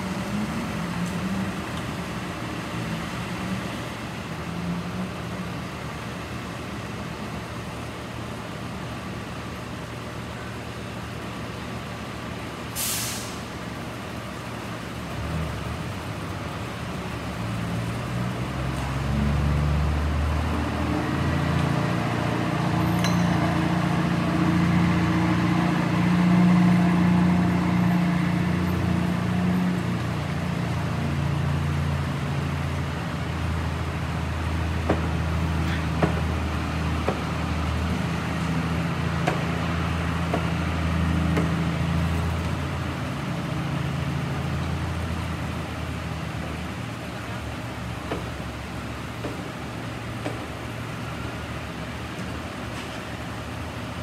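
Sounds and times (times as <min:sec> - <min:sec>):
metal and debris clinking: 0:23.0 - 0:23.5.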